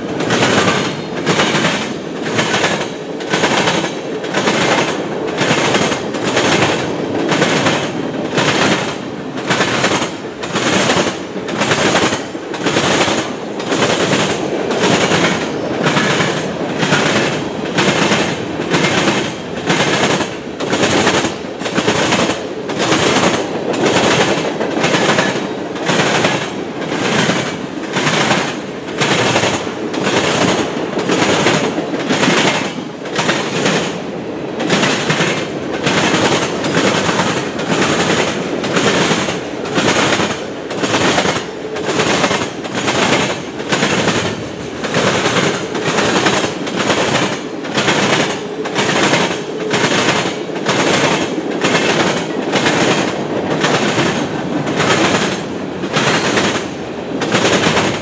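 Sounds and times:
train wheels clacking over track: 0.0s - 58.0s.

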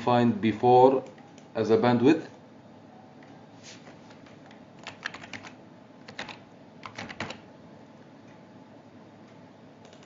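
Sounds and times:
keyboard keystrokes: 4.4s - 7.4s.

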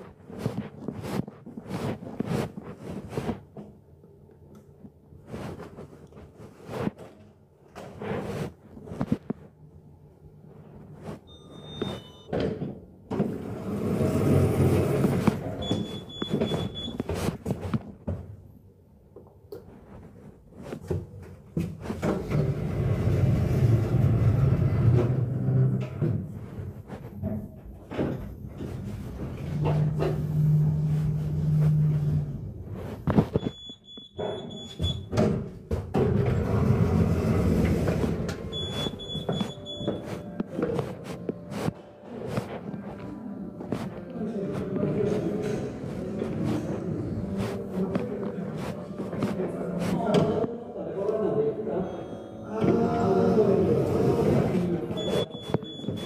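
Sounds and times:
footsteps on marble floor: 0.0s - 3.8s, 4.8s - 9.6s, 10.5s - 18.5s, 19.2s - 50.6s, 54.6s - 56.0s
elevator signal beeping: 11.3s - 12.3s, 15.6s - 17.1s, 33.4s - 35.1s, 38.5s - 40.4s, 51.8s - 52.6s, 55.0s - 56.0s
elevator doors sliding closed: 13.2s - 16.7s, 22.0s - 26.3s, 35.9s - 39.5s
rumbling: 22.3s - 33.2s.

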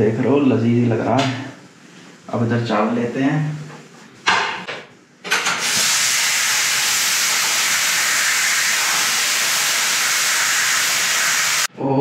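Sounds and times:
pressure cooker steam hissing: 5.5s - 11.7s.

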